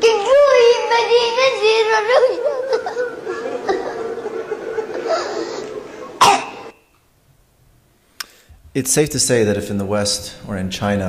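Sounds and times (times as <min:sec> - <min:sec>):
boy reciting into a microphone: 0:00.0 - 0:03.0
boy weeping and wailing: 0:00.0 - 0:04.0.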